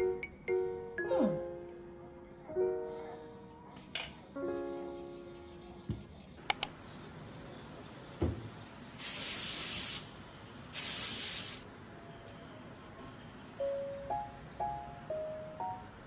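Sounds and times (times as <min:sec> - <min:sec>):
sharp clicks: 0:06.4 - 0:06.8
aerosol spray hissing: 0:09.0 - 0:11.7.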